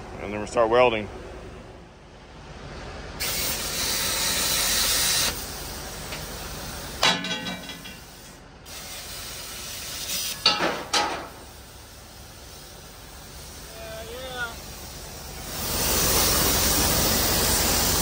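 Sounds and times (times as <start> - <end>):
gas torch hissing: 3.2 - 7.0, 7.6 - 18.0
ringing metallic clank: 7.0 - 8.1
sharp metal knocks: 7.0 - 8.1.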